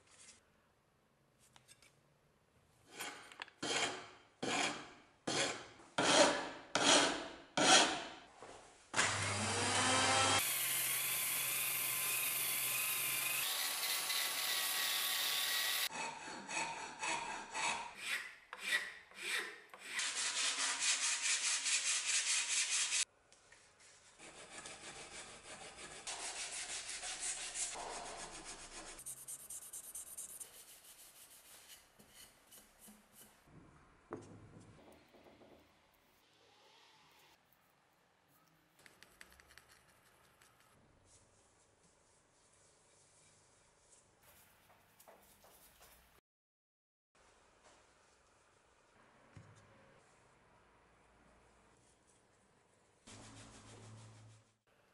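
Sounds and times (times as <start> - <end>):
hand sanding wood: 19.3 - 23.0, 24.2 - 33.3.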